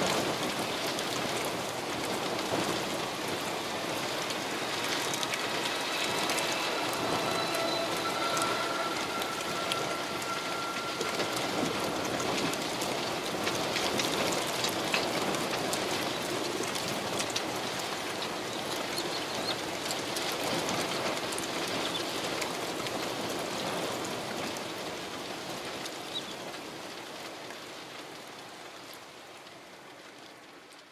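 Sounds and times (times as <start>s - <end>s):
heavy rain falling: 0.0s - 30.9s
faint high tone: 5.3s - 13.4s.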